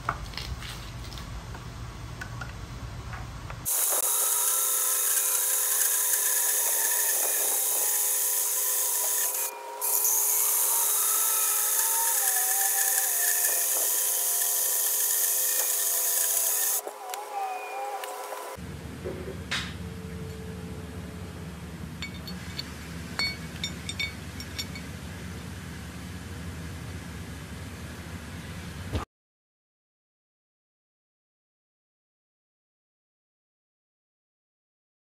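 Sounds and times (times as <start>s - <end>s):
band saw cutting metal: 3.7s - 18.6s.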